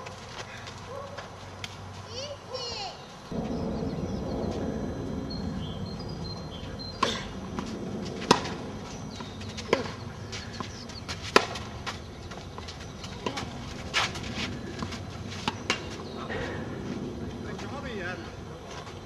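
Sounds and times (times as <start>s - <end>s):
faint bird chirps: 2.6s - 7.4s
tennis ball struck by racquets: 7.0s - 12.4s.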